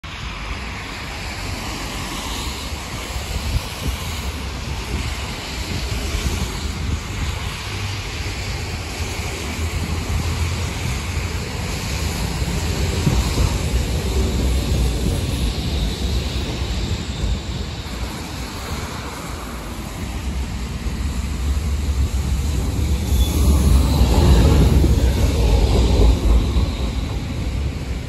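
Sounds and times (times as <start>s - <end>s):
tyres hissing on wet road: 0.0s - 28.0s
wind buffeting microphone: 0.2s - 28.0s.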